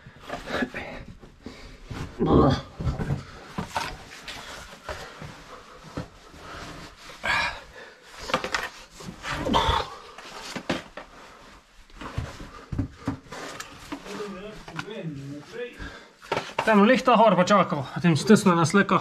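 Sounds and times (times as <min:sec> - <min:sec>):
person breathing hard: 0:04.5 - 0:08.4.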